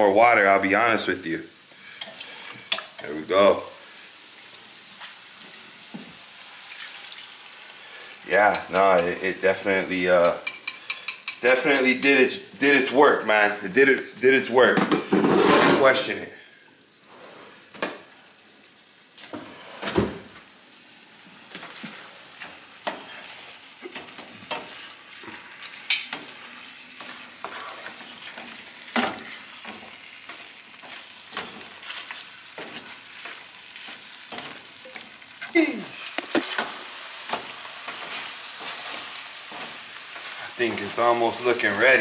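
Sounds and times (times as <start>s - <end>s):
food sizzling in a pan: 0.0s - 13.6s, 16.0s - 42.0s
spatula scraping and knocking pan: 21.6s - 35.0s, 36.0s - 42.0s.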